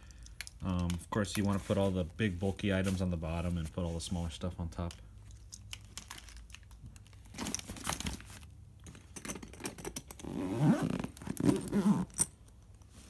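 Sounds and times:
bag rustling and crinkling: 10.2 - 12.3.

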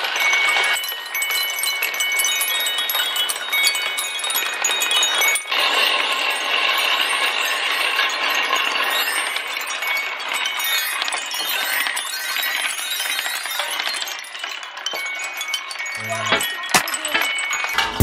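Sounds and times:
glass marbles clinking in metal bowl: 0.0 - 18.0
ringing tone: 15.5 - 18.0
marble rolling down xylophone bars: 15.9 - 18.0.

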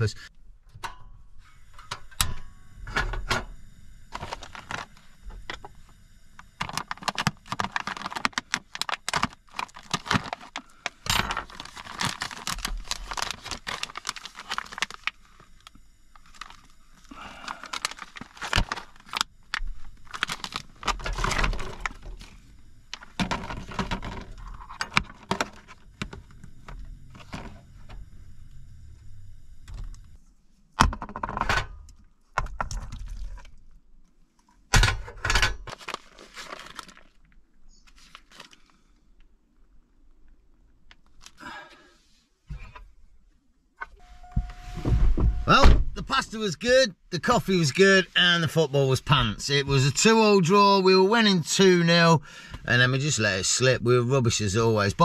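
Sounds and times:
plastic packaging crinkling and tearing: 4.2 - 5.0, 6.6 - 25.9, 35.7 - 38.7
cooking gear clinking and rattling: 6.6 - 15.1.

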